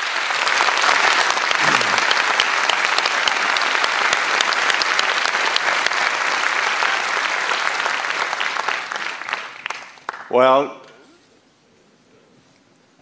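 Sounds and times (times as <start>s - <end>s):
audience applauding: 0.0s - 10.4s.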